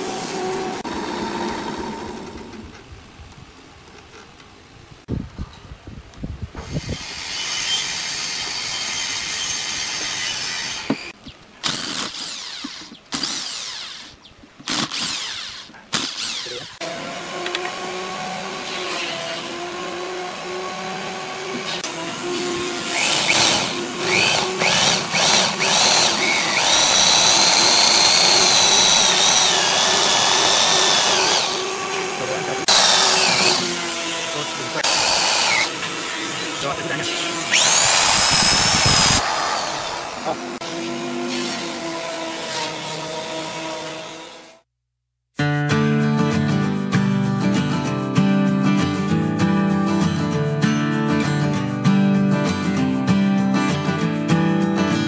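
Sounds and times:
electric drill boring into wood: 0.0 - 2.8, 6.6 - 44.5
wood lathe turning wood: 0.0 - 2.8, 6.7 - 44.6.

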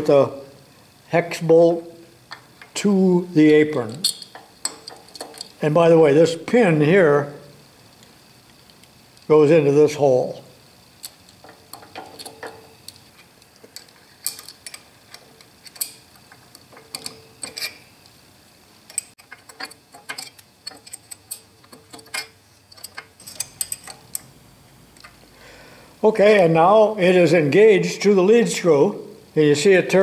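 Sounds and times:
wrench clicking on metal bolt: 3.8 - 5.6, 11.0 - 13.0, 13.8 - 17.9, 18.9 - 24.3.

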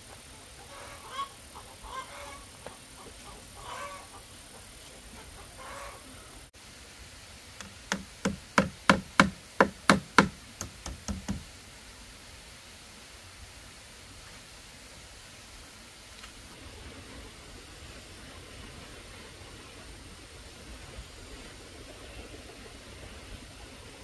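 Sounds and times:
faint animal calls: 0.4 - 6.5
sharp knocks: 7.6 - 11.4.

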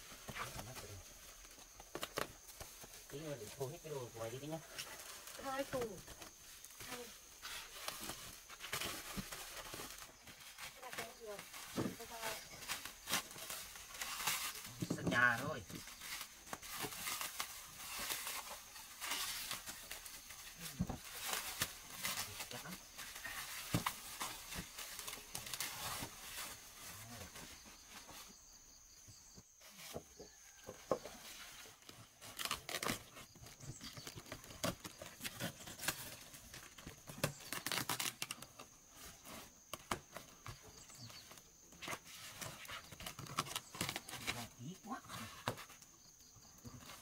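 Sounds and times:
plastic film crinkling and tearing: 0.3 - 26.8, 31.8 - 40.2, 41.3 - 44.6
cardboard flaps being cut open: 31.9 - 38.7, 41.2 - 44.5.

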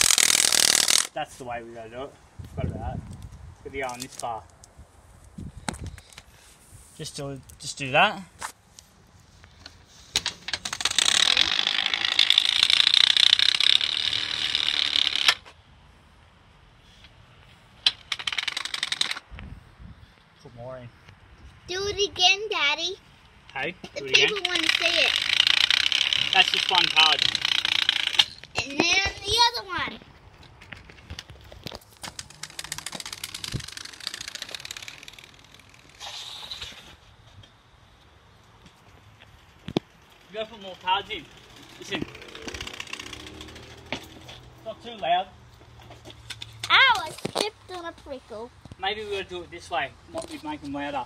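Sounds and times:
card clattering against bike spokes: 9.5 - 15.4, 30.4 - 37.5.

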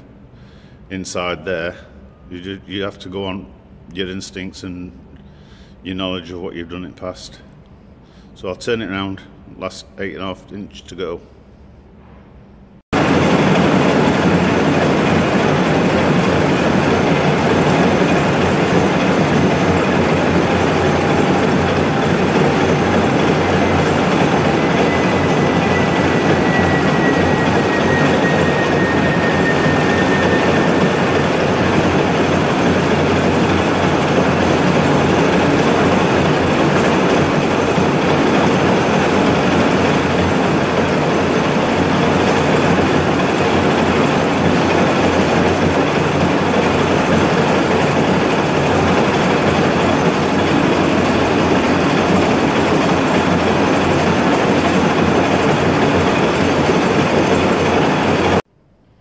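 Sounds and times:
lathe grinding metal: 13.0 - 58.4.

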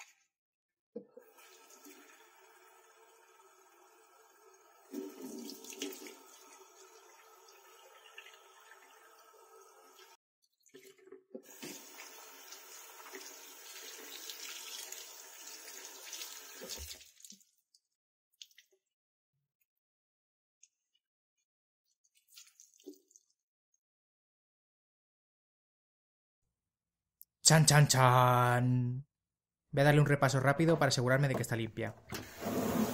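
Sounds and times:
tap water splashing over hands: 16.1 - 17.4
water drips: 22.1 - 23.4.

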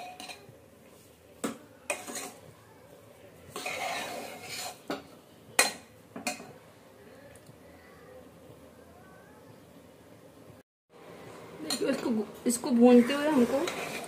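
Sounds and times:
spoon scraping pot: 0.0 - 0.5, 1.9 - 2.5, 3.5 - 6.5, 13.0 - 14.0.

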